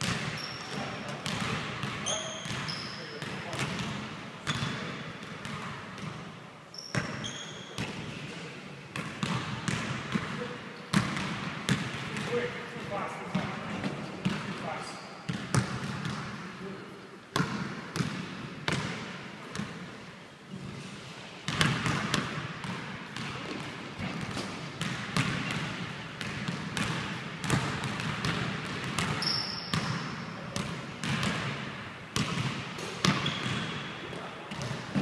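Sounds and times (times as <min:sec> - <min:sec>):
basketball bouncing on wooden floor: 0:00.0 - 0:06.2, 0:15.3 - 0:16.3, 0:17.4 - 0:19.7, 0:21.5 - 0:30.0, 0:30.6 - 0:31.5, 0:32.2 - 0:33.7.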